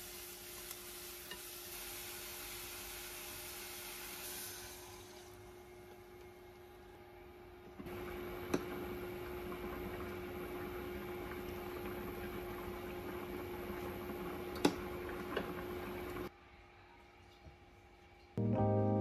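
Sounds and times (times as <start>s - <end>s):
water boiling with bubbling hiss: 0.0s - 6.6s, 7.8s - 16.3s
cooktop hum: 0.0s - 18.8s.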